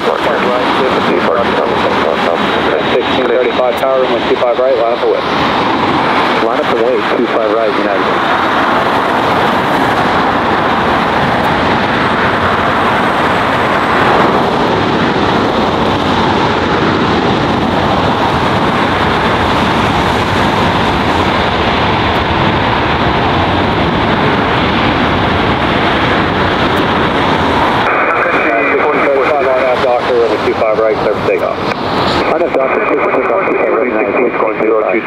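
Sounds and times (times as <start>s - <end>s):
jet engines roaring: 0.0s - 35.0s.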